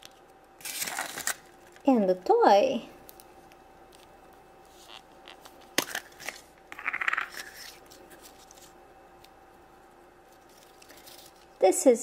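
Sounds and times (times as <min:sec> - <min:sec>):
paper wrapper rustling: 0:00.0 - 0:01.9, 0:03.9 - 0:09.3, 0:10.2 - 0:11.6
plastic capsule snapping open: 0:05.7 - 0:07.6.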